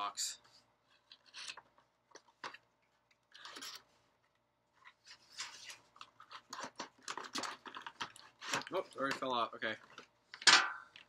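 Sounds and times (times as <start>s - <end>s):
plastic packaging rustling: 4.9s - 10.1s.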